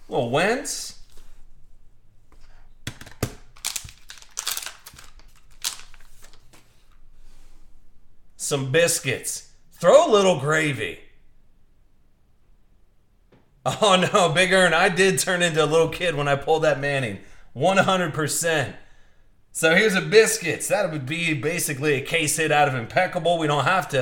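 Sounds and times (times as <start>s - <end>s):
card packaging crinkling: 2.8s - 7.0s.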